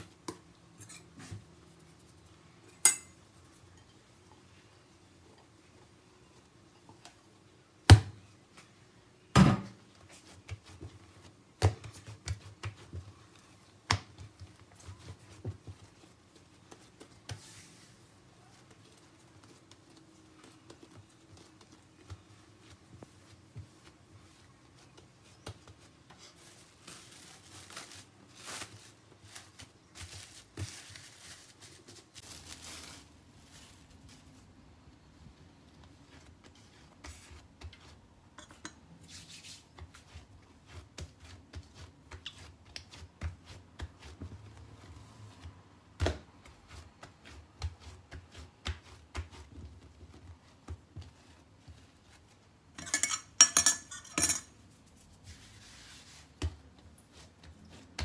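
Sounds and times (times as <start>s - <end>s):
dough squishing and pressing: 0.0s - 58.0s
dough thumping on stone countertop: 7.8s - 8.3s, 9.3s - 17.6s, 45.4s - 51.8s, 56.3s - 56.7s
rustling and rubbing: 9.8s - 58.0s.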